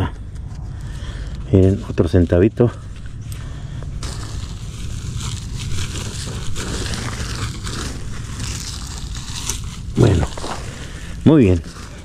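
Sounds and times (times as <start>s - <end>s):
low rumble: 0.0s - 12.0s
wood chip mulch crunching: 4.0s - 12.0s.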